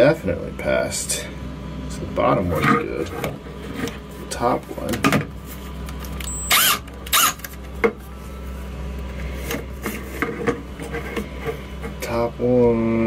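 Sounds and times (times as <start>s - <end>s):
cordless drill motor whirring: 6.2s - 7.5s
drill click: 6.2s - 7.5s.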